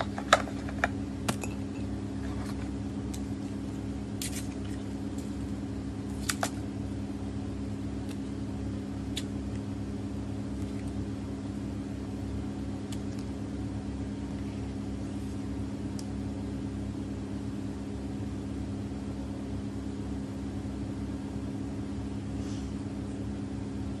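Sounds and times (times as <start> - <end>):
low machine hum: 0.0 - 24.0.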